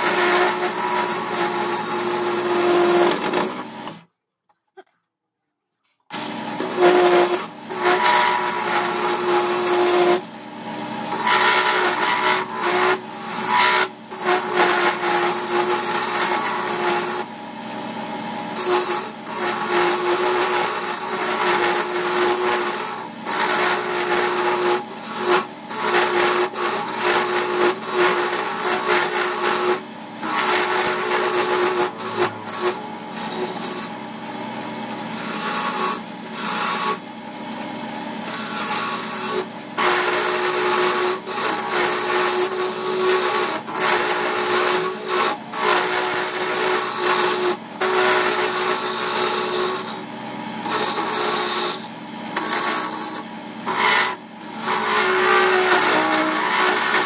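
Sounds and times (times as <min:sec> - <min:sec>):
turning tool shaving wood: 0:00.0 - 0:04.0, 0:06.1 - 0:10.3, 0:10.9 - 0:37.1, 0:38.2 - 0:57.0
lathe motor hum: 0:25.0 - 0:35.5.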